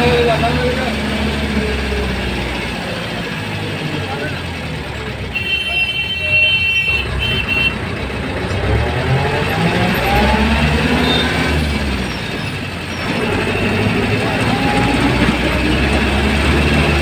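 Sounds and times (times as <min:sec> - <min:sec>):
vehicle engine and road noise: 0:00.0 - 0:17.0
car horn: 0:05.2 - 0:07.9, 0:10.9 - 0:11.6.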